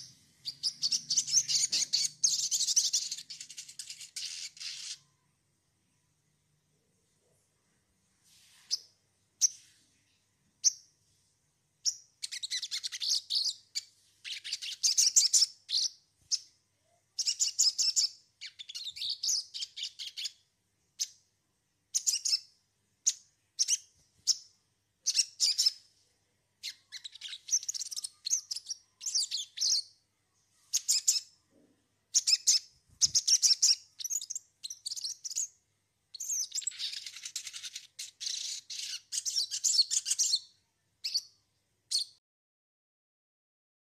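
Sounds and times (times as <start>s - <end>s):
bird chirping in short bursts: 0.0s - 5.2s, 11.8s - 16.5s, 17.2s - 20.4s, 21.9s - 25.8s, 26.6s - 29.9s, 30.7s - 31.4s, 32.1s - 35.5s, 36.1s - 42.2s.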